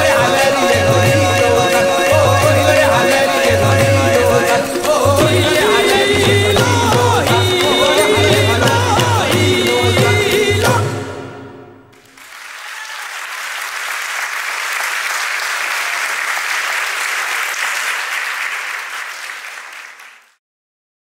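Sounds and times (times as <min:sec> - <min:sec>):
music with steady beat: 0:00.0 - 0:11.5
audience applauding: 0:12.0 - 0:20.4.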